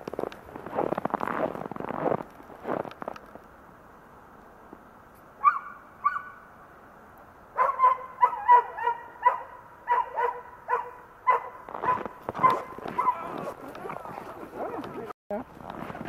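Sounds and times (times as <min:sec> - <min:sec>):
dog barking: 0:07.6 - 0:15.0.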